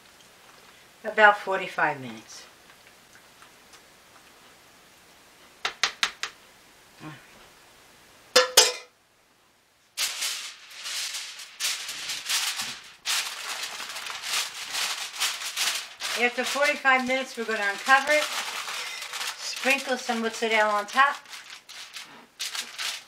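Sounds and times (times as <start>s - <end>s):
metal clank: 8.4s - 8.9s
aluminum foil crinkling: 9.9s - 23.0s.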